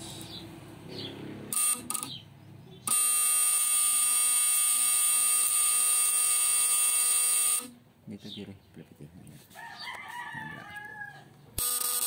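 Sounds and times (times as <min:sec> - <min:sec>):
high-pitched electrical buzz: 0:01.2 - 0:02.2, 0:02.8 - 0:07.8, 0:11.6 - 0:12.0.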